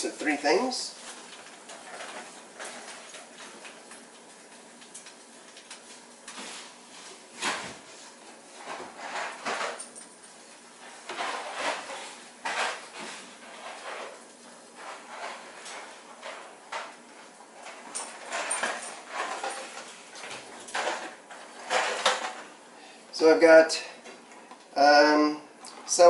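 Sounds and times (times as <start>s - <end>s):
kitchen things rattling and knocking: 0.6s - 4.3s, 6.5s - 22.6s.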